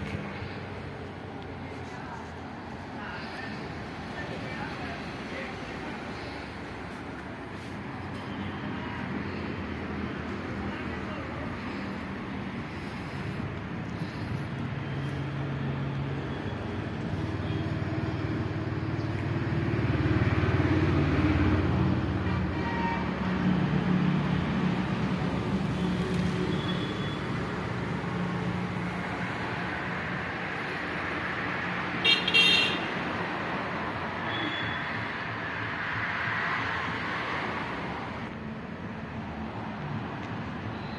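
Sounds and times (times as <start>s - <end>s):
road traffic passing: 0.0s - 40.9s
vehicle horn honking: 22.6s - 23.1s, 32.0s - 32.9s.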